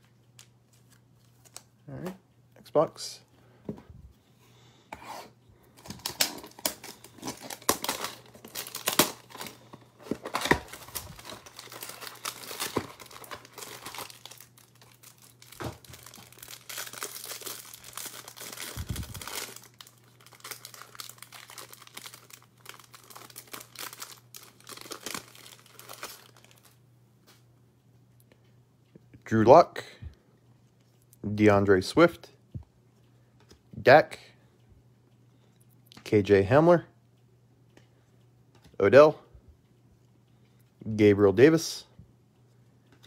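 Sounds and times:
cellophane wrapper crinkling: 5.8s - 26.8s.

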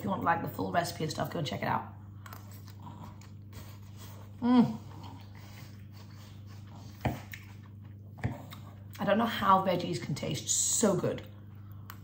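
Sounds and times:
steady low hum: 0.0s - 12.0s
woman chewing: 2.2s - 9.0s
woman humming mmm: 4.4s - 5.3s.

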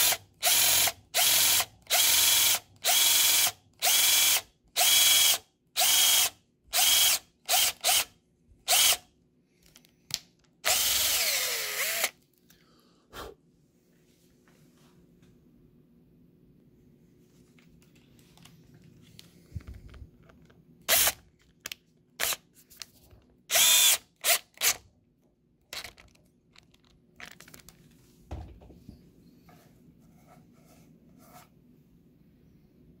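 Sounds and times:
power drill driving screw: 0.0s - 8.1s, 8.7s - 9.0s, 10.6s - 12.1s, 20.9s - 21.2s, 23.5s - 24.8s.

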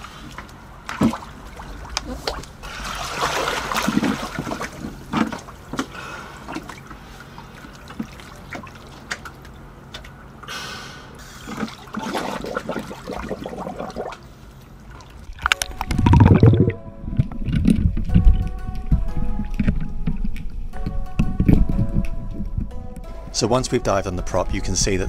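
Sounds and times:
water splashing and sloshing: 0.0s - 10.5s, 11.2s - 22.6s
music: 15.4s - 25.0s.

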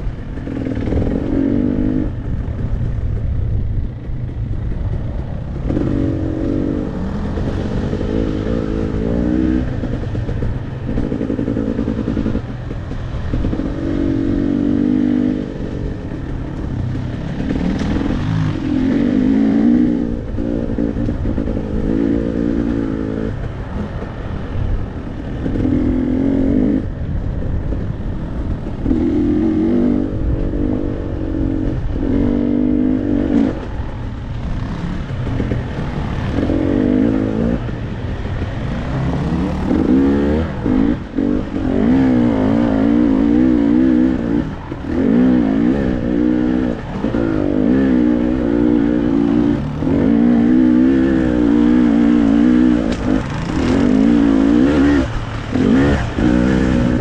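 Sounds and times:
dirt bike engine revving: 0.3s - 2.4s, 5.5s - 24.3s, 28.6s - 57.0s.

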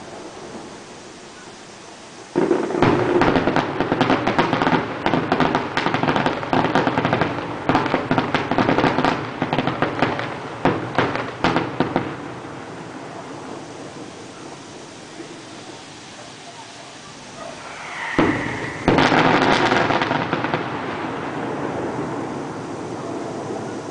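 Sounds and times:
fireworks bangs and crackles: 0.0s - 23.9s.

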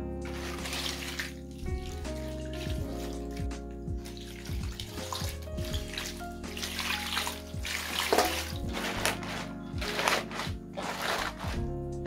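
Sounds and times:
background music with low beat: 0.0s - 12.0s
water running and splashing: 0.2s - 11.7s.

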